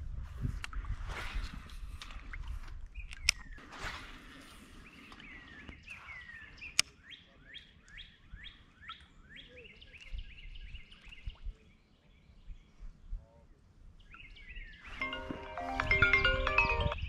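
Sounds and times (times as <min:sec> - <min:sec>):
songbird singing: 0:04.7 - 0:17.0.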